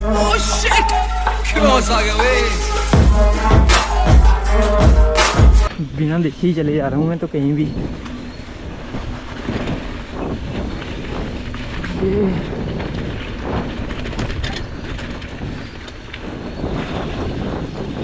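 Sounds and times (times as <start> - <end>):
bike tyres rolling over dirt: 5.7 - 18.0
wind buffeting microphone: 5.7 - 18.0
bike rattling over bumps: 6.2 - 18.0.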